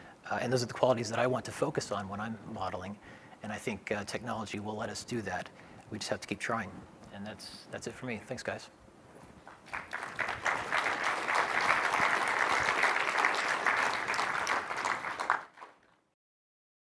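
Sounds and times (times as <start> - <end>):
audience applauding: 9.5 - 16.0.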